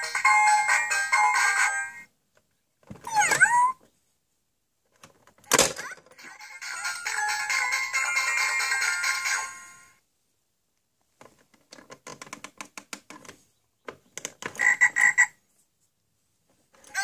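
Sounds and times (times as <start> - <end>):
frog-like croak: 14.6 - 15.4.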